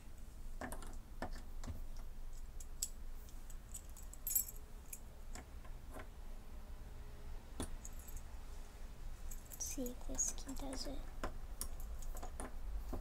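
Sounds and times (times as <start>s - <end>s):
keys jangling: 3.5s - 5.1s.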